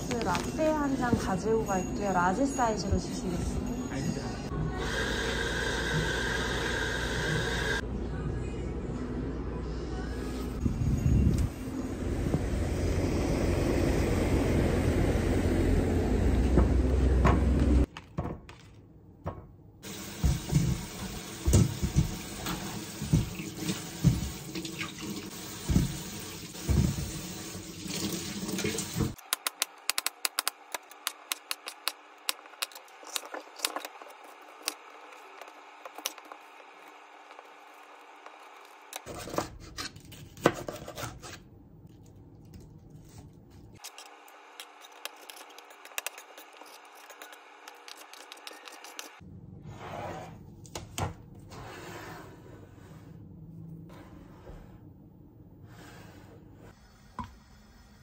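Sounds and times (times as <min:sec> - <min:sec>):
vegetables knocking while rinsed: 0:25.6 - 0:27.2.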